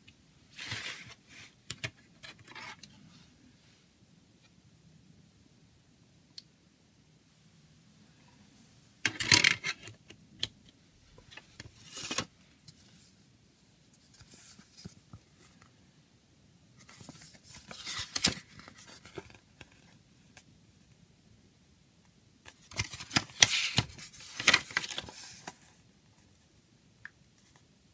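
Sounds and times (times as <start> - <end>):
paper booklet rustling: 11.3 - 13.1, 16.8 - 19.9, 22.5 - 25.8.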